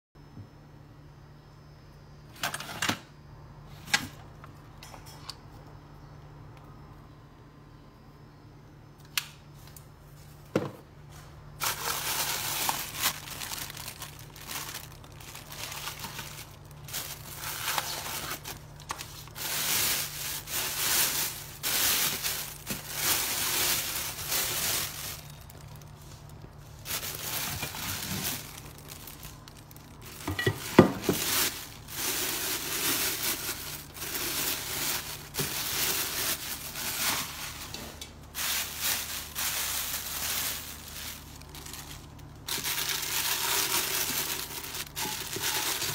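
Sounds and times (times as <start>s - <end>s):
plastic wrapping crinkling: 11.2s - 45.9s.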